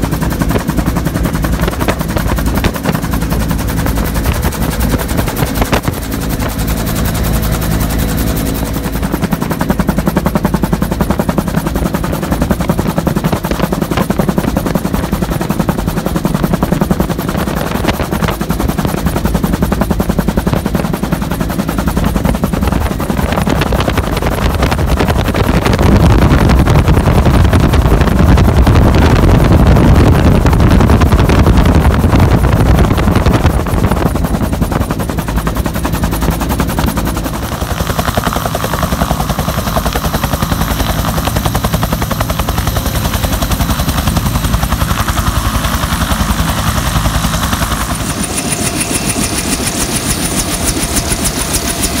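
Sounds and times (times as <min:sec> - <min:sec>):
helicopter rotor beating: 0:00.0 - 0:52.0
steady high whine: 0:19.1 - 0:52.0.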